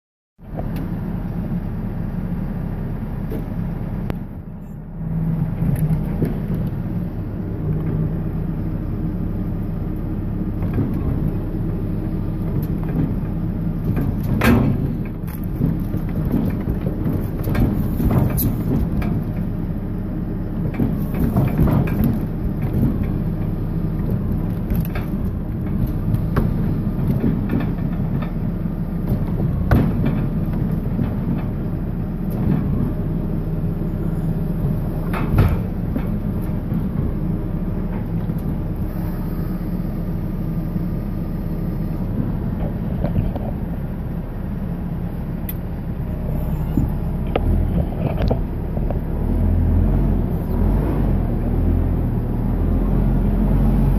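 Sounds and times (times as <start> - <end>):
diesel engine running: 0.4 - 53.9
sharp knocks and clunks: 12.4 - 19.6, 20.6 - 33.0, 34.6 - 38.9.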